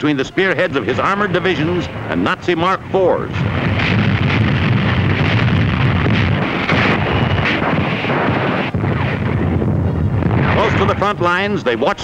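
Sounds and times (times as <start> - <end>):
low battle rumble: 0.6 - 12.0
explosion blasts: 0.9 - 11.7
rapid gunfire cracks: 3.4 - 11.1.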